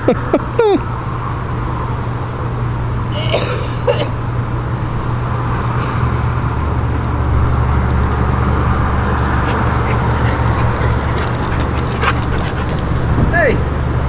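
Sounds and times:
low mechanical hum: 0:00.0 - 0:14.0
broad rushing noise: 0:03.9 - 0:14.0.

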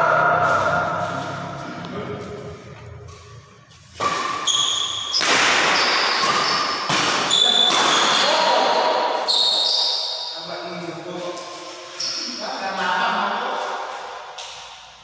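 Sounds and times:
loud rushing noise: 0:00.0 - 0:03.5
shoes squeaking on court floor: 0:02.2 - 0:12.8.

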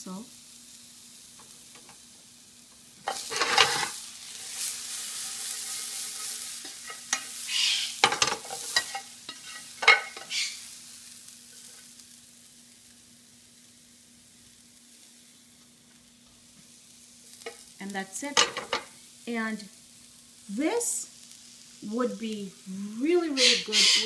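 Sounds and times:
food sizzling in a frying pan: 0:00.0 - 0:24.0
tongs clicking against pan: 0:06.2 - 0:07.4, 0:08.0 - 0:10.3.

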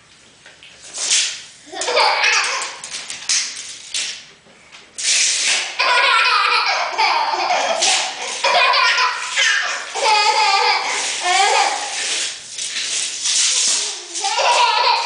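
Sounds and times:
baby laughing: 0:01.7 - 0:02.8, 0:05.7 - 0:12.0, 0:13.9 - 0:15.0.

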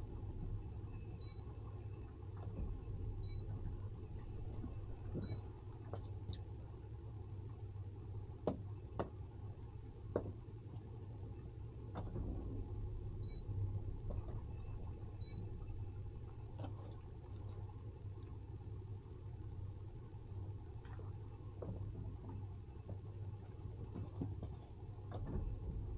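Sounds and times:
boat engine low drone: 0:09.2 - 0:25.9.

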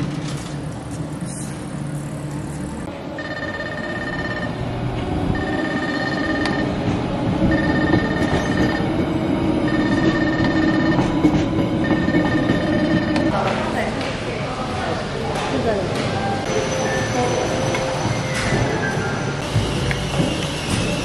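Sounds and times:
train rumbling past: 0:00.0 - 0:21.0
level-crossing warning beeps: 0:03.2 - 0:04.6, 0:05.3 - 0:06.8, 0:07.4 - 0:13.6.

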